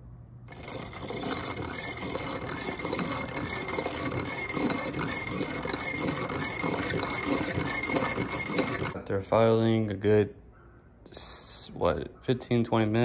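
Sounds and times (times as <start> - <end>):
hand-cranked filer grinding metal: 0.5 - 9.0.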